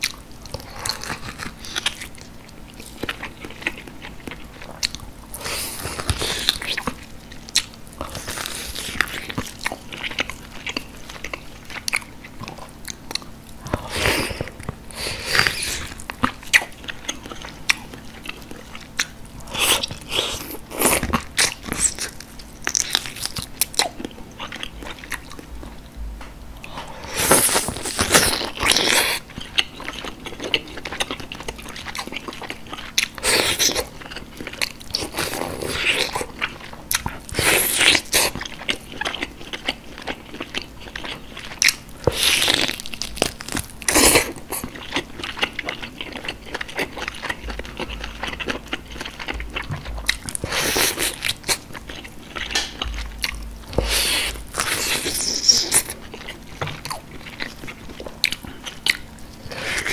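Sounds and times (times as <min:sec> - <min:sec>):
wet chewing: 0:00.0 - 0:26.0, 0:26.6 - 0:59.9
person gnawing meat off bone: 0:26.6 - 0:59.9.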